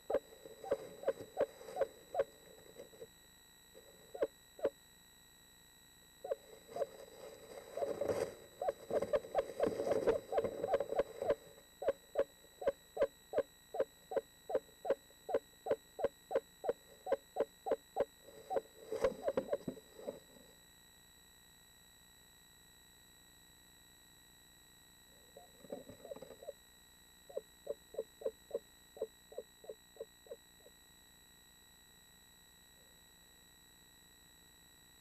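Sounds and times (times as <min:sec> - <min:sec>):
owl giving short hoots: 0:00.0 - 0:02.3, 0:07.8 - 0:20.3.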